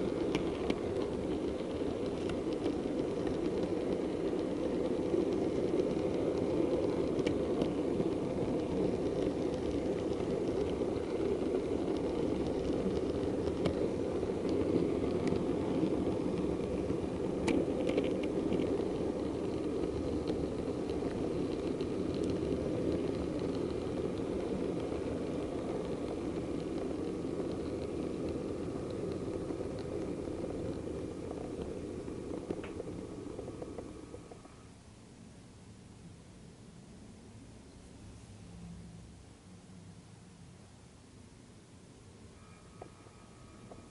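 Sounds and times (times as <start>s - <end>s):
model train rumbling on track: 0.0s - 34.8s, 41.6s - 43.9s.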